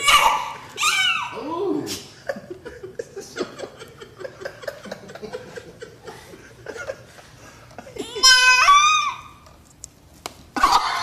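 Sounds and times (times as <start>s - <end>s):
person chuckling: 2.0s - 8.2s.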